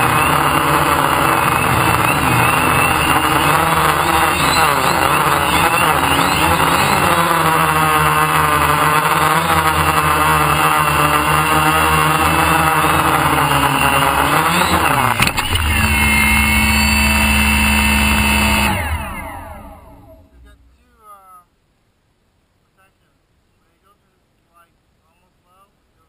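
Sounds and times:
drone motors whining: 0:00.0 - 0:20.7.

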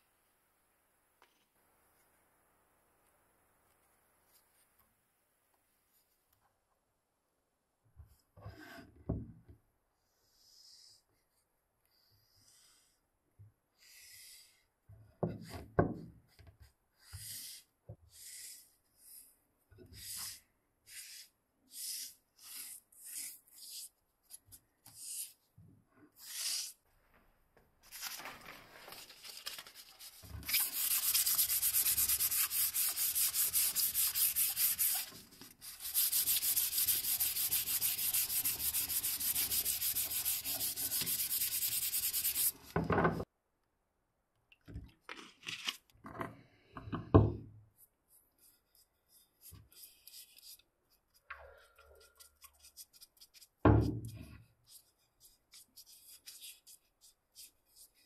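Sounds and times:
dauber brushing wood: 0:29.9 - 0:42.8
pad scrubbing wooden handle: 0:30.5 - 0:42.6.

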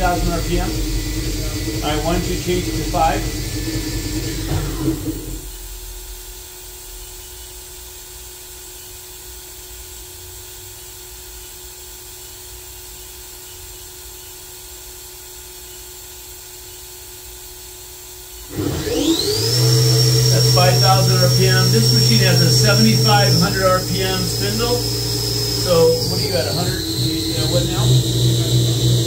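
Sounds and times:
machining center humming: 0:00.0 - 0:05.9, 0:18.5 - 0:29.0
spindle rising whine: 0:00.0 - 0:06.2, 0:18.5 - 0:29.0.

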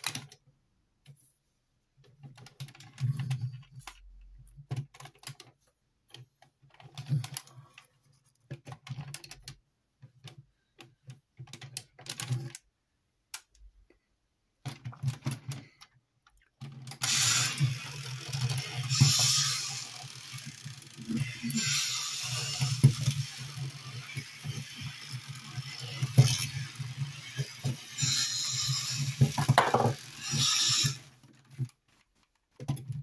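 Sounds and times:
plastic clicks and rattles: 0:00.0 - 0:00.4, 0:02.0 - 0:12.7, 0:14.6 - 0:19.5, 0:29.0 - 0:33.0
toy motor whirring clatter: 0:16.6 - 0:31.8.

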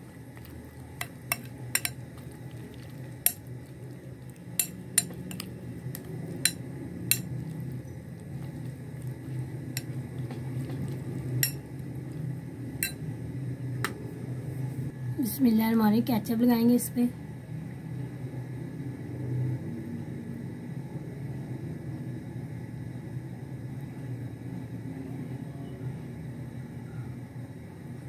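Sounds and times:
low steady hum: 0:00.0 - 0:28.0
spoon clinking against glass bowl: 0:01.0 - 0:02.0, 0:04.6 - 0:05.5, 0:06.4 - 0:07.4, 0:11.4 - 0:11.7.

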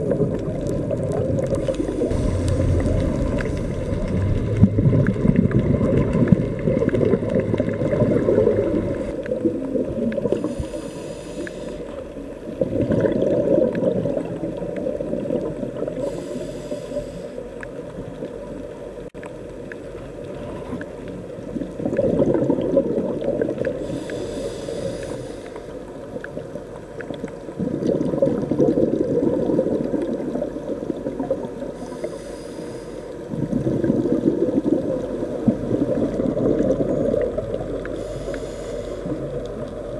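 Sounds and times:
exhaled bubbles rushing: 0:00.0 - 0:10.5, 0:12.5 - 0:16.2, 0:21.4 - 0:24.0, 0:27.3 - 0:31.7, 0:33.3 - 0:38.0
regulator inhale hiss: 0:01.5 - 0:04.1, 0:10.3 - 0:12.1, 0:16.0 - 0:17.6, 0:23.8 - 0:25.9, 0:31.7 - 0:33.3, 0:37.8 - 0:39.6.

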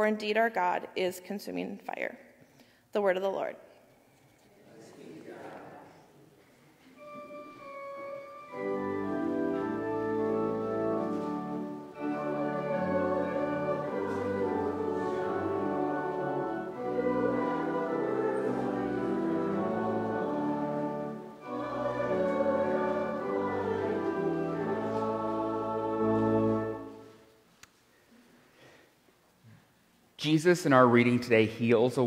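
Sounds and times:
keyboard accompaniment: 0:06.8 - 0:27.4
congregation singing: 0:06.9 - 0:27.4.

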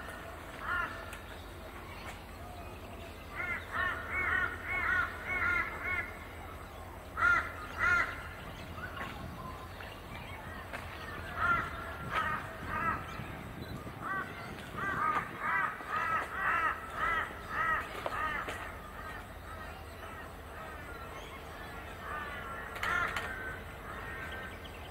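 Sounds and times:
crow cawing: 0:03.4 - 0:06.2, 0:07.2 - 0:08.2, 0:14.0 - 0:19.2, 0:22.0 - 0:24.4.

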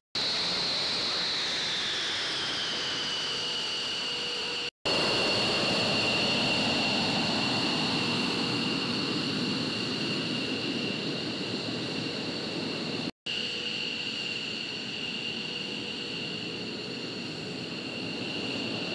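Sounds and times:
jet engines whining: 0:00.2 - 0:18.9.

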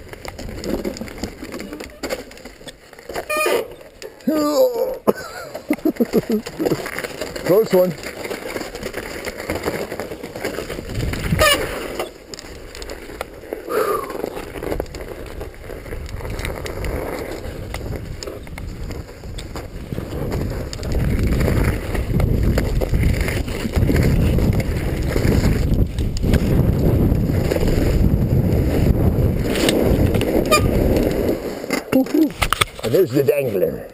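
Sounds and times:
bike rattling: 0:00.0 - 0:33.9
wind on microphone: 0:10.7 - 0:11.9, 0:13.7 - 0:31.5.

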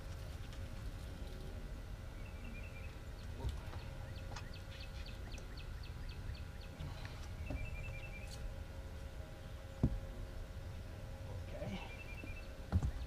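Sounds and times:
birds chipping: 0:01.2 - 0:08.6, 0:09.4 - 0:13.0.

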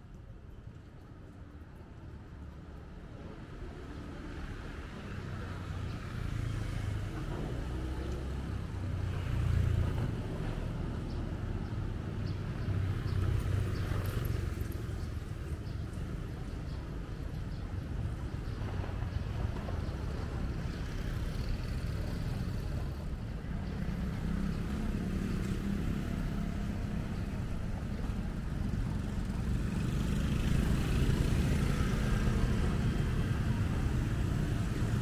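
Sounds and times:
motor scooters passing: 0:03.8 - 0:35.0
cars passing: 0:04.2 - 0:35.0.

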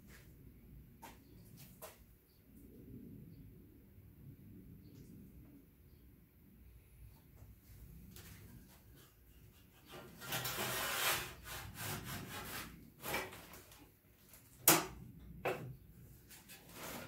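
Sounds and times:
wooden block scraping on steel: 0:09.0 - 0:13.8.

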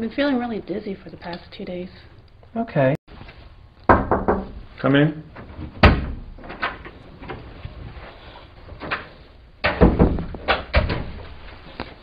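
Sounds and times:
door thudding shut: 0:05.8 - 0:06.8, 0:09.6 - 0:11.2.

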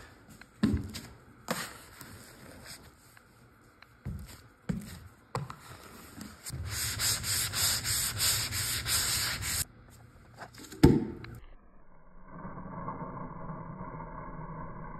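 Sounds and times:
sanding block rubbing plaster: 0:06.5 - 0:09.7.

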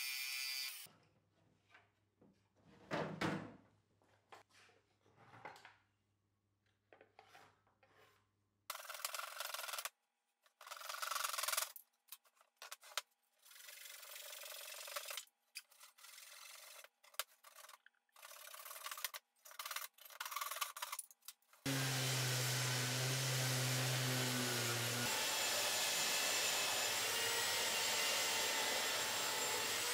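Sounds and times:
hand saw cutting wood: 0:21.6 - 0:29.9.

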